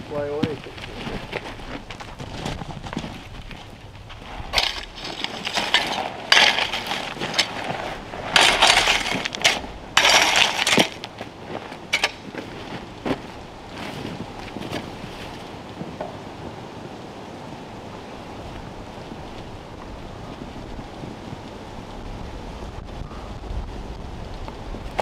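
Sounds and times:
gravel being scraped: 0.0s - 16.6s.

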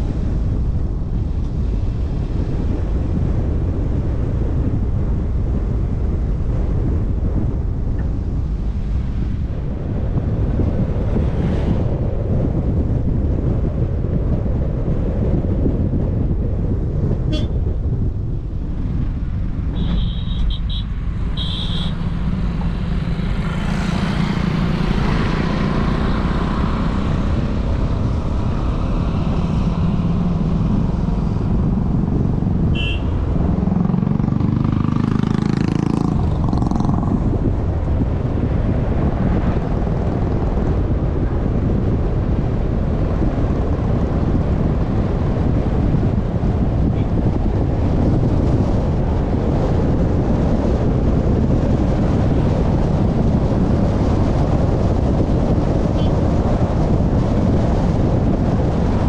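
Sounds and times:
car tyre rumble and engine hum: 0.0s - 59.0s
passing engine: 18.4s - 41.2s.

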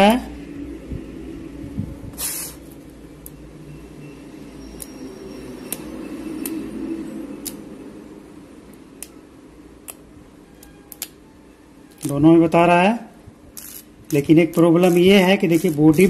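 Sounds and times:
short hiss: 2.1s - 2.8s.

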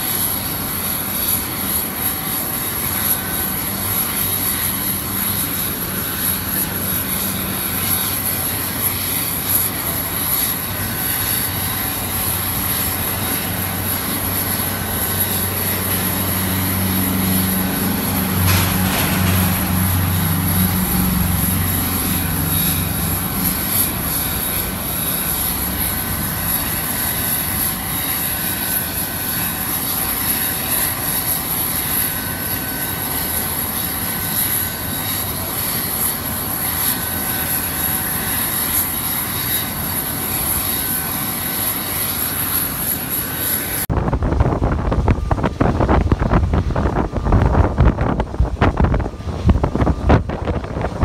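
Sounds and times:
jet turbine rush and whine: 0.0s - 51.0s
wind buffeting microphone: 3.2s - 29.7s, 43.8s - 51.0s.

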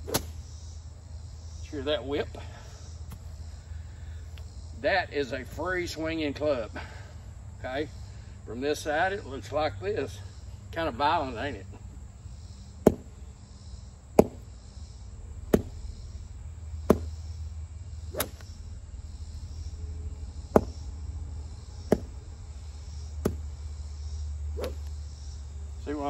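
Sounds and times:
golf club whipping through air: 0.0s - 0.5s, 15.1s - 23.6s, 24.5s - 25.2s.

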